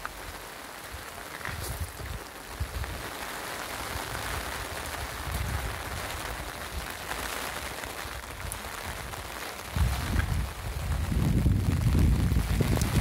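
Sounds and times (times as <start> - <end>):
rushing water: 0.0 - 13.0
low rumbles on microphone: 9.7 - 13.0.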